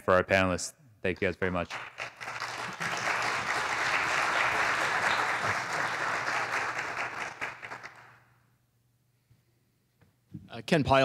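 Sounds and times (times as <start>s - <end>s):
audience applauding: 1.7s - 8.2s.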